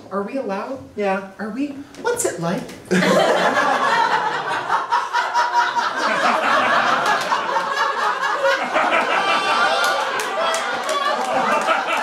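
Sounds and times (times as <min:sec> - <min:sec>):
audience laughing: 0:02.9 - 0:12.0.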